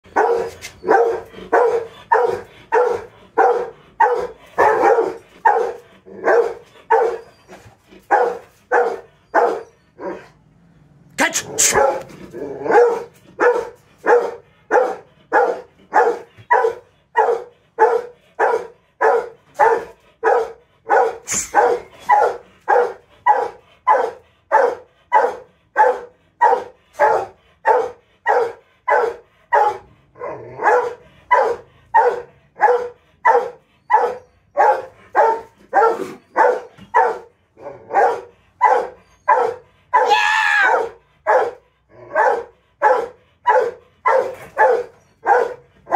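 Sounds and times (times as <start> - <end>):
dog barking: 0.1 - 7.4, 8.0 - 10.3, 11.2 - 29.9, 30.5 - 45.9
dog high-pitched cry: 6.3 - 7.8, 11.2 - 12.0, 38.6 - 41.0.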